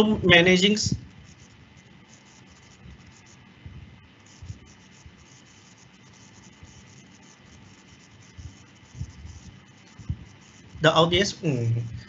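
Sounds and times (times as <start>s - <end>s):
microphone hiss: 0.0s - 12.0s
soft low thumps: 3.6s - 5.2s, 8.4s - 11.2s, 11.8s - 12.0s.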